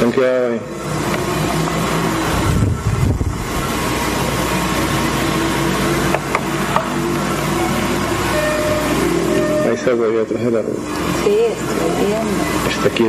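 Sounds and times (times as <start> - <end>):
low mechanical hum: 0.0 - 13.0
brief high tones: 7.6 - 10.1.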